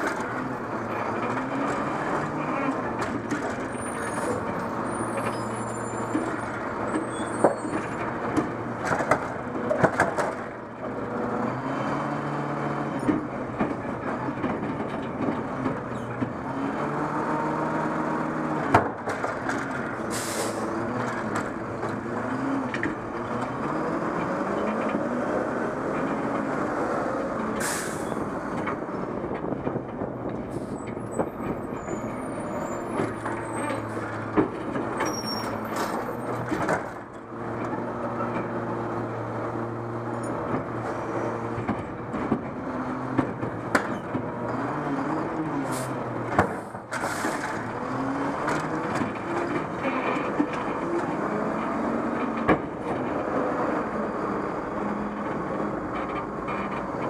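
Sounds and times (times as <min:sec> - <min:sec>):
garbage truck diesel engine: 0:00.0 - 0:57.0
short air hisses: 0:20.1 - 0:20.6, 0:27.6 - 0:28.0.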